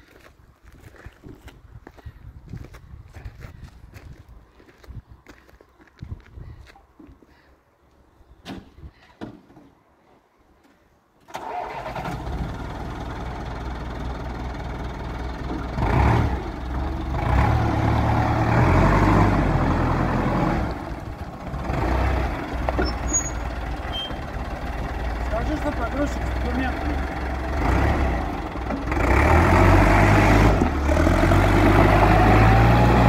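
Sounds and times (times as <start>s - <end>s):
diesel forklift engine running: 11.3s - 33.0s.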